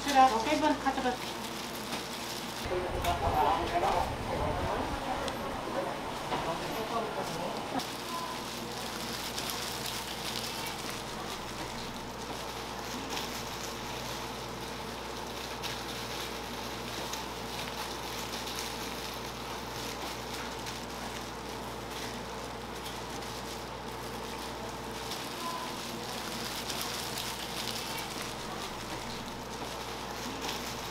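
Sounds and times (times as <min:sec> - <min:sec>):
egg sizzling on griddle: 0:07.6 - 0:30.9.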